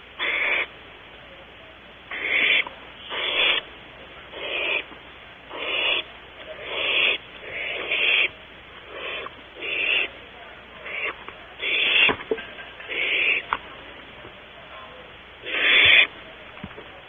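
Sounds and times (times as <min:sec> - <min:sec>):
owl nestlings hissing calls: 0:00.0 - 0:00.8, 0:02.1 - 0:03.7, 0:04.3 - 0:04.9, 0:05.5 - 0:10.2, 0:10.8 - 0:12.2, 0:12.9 - 0:13.5, 0:15.4 - 0:16.1.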